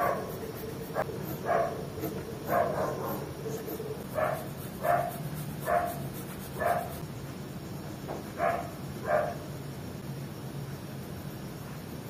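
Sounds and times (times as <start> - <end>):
dog barking: 0.0 - 6.0, 6.6 - 7.0, 8.4 - 9.4.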